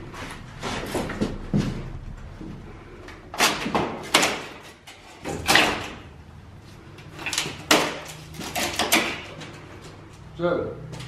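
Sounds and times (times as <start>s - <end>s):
wood and metal cracks: 3.1s - 6.2s, 7.0s - 10.0s
crowbar prying wooden planks: 3.3s - 6.1s, 7.2s - 9.5s.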